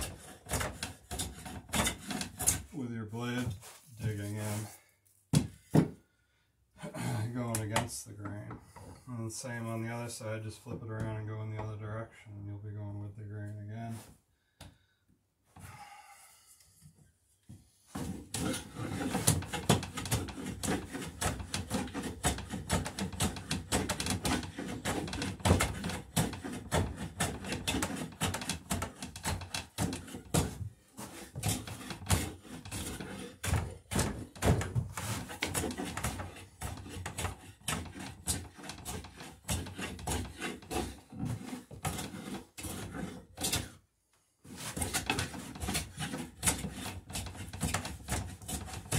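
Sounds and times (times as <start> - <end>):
hand plane shaving wood: 0.0 - 4.8, 17.9 - 43.8, 44.4 - 48.9.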